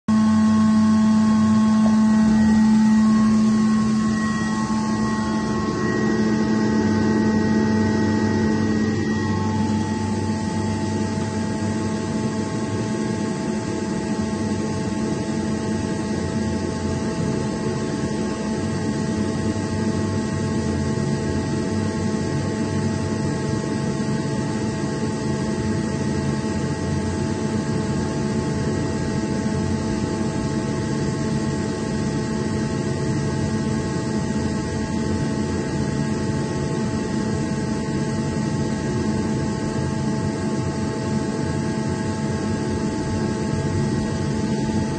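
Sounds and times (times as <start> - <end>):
air compressor drone: 0.0 - 44.9
whining machine tones: 0.1 - 26.0.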